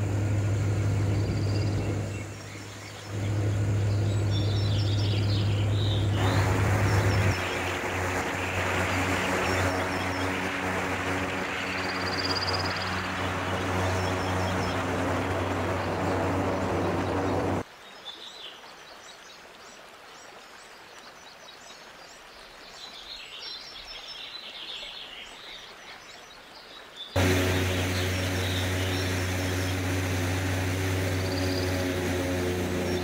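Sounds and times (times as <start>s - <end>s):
airboat engine and propeller: 0.0s - 17.7s, 27.2s - 33.0s.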